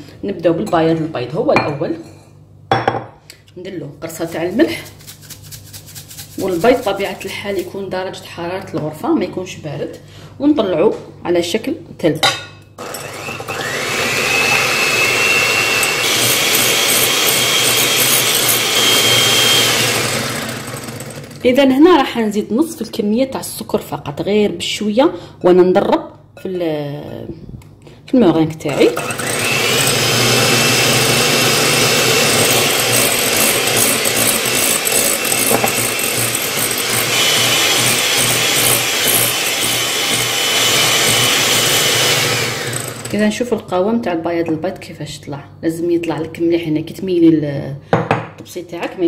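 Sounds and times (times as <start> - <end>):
electric hand mixer whining: 12.8 - 21.4, 28.8 - 43.2.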